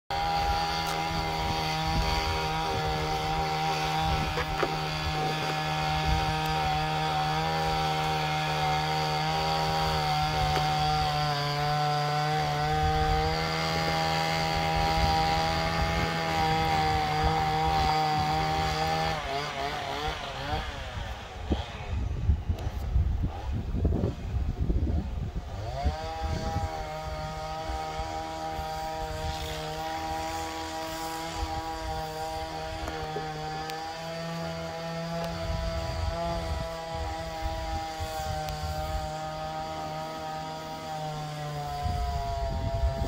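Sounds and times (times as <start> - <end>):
chainsaw cutting a tree: 0.1 - 43.0.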